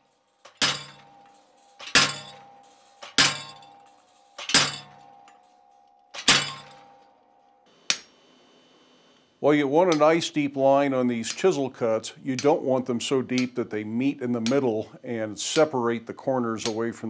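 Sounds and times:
light metal clink: 0.0 - 7.1
hammer striking chisel on steel: 0.4 - 5.5, 6.1 - 7.1, 7.9 - 8.2, 11.2 - 11.7, 12.3 - 13.7, 14.3 - 14.9.

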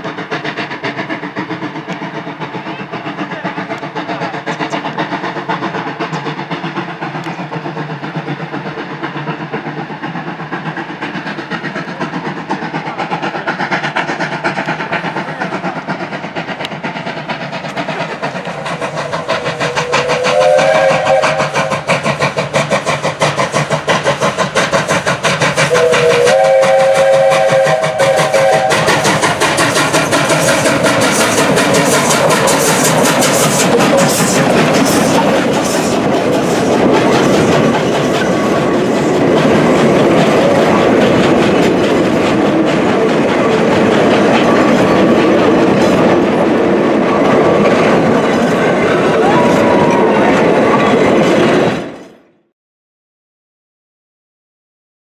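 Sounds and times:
steam locomotive exhaust chuffing: 0.0 - 52.1
steam locomotive chime whistle: 19.3 - 21.9, 25.7 - 29.4.

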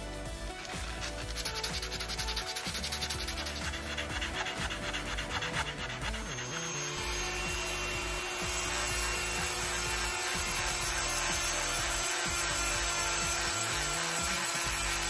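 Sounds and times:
rotary tool grinding: 0.5 - 15.0
sandpaper scrubbing: 0.6 - 7.7.

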